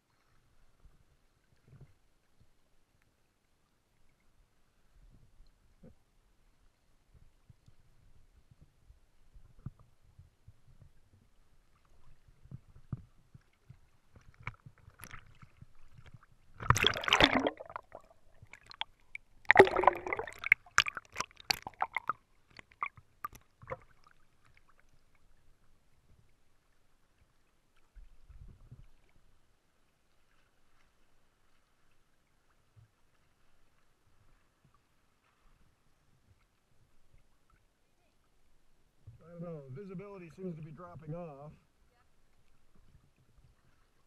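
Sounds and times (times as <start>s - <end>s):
small water crackles: 0.0s - 44.0s
water sloshing and splashing: 11.7s - 37.4s
loud water splashes: 16.6s - 23.0s.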